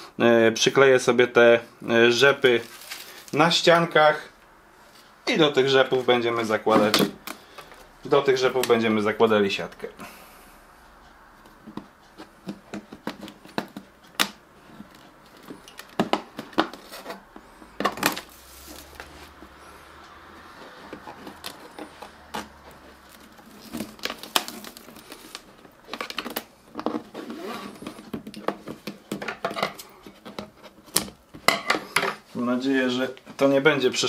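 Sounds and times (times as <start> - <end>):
clicks and taps on plastic: 11.4 - 18.2.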